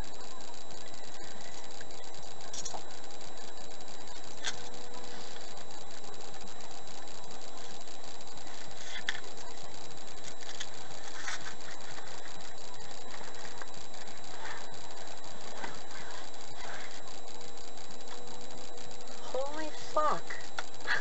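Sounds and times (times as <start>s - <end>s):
steady hum: 0.0s - 21.0s.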